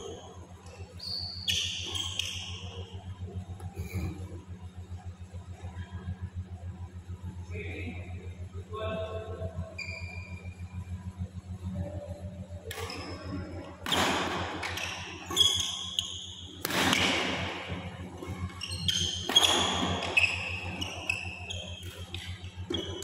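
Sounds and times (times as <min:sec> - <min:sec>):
steady low hum: 0:00.0 - 0:23.0
sneakers squeaking on court: 0:00.1 - 0:02.9, 0:12.7 - 0:23.0
rackets hitting shuttlecock: 0:12.6 - 0:16.0, 0:16.6 - 0:23.0.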